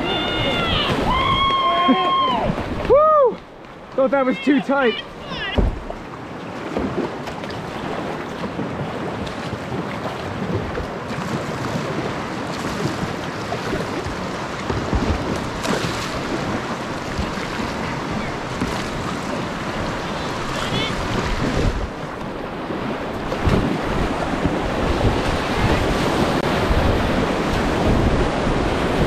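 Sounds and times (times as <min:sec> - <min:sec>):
paddle strokes in water: 0:00.0 - 0:29.0
water rushing over riffles: 0:00.0 - 0:29.0
wind buffeting microphone: 0:07.8 - 0:29.0.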